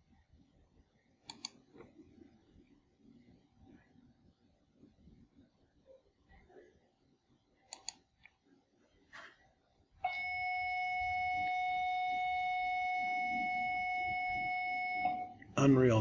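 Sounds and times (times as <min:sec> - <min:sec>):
faint mouse clicks: 0:01.2 - 0:01.9, 0:07.7 - 0:08.4.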